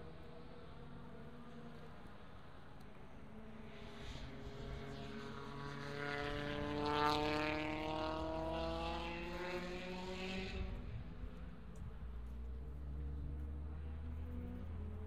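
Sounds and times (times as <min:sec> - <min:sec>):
race car engine accelerating: 0:03.3 - 0:15.0.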